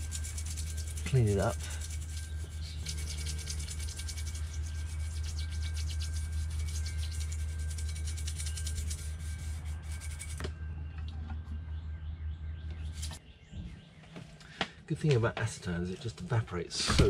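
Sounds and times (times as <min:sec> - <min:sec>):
brush scrubbing metal: 0:00.0 - 0:10.4.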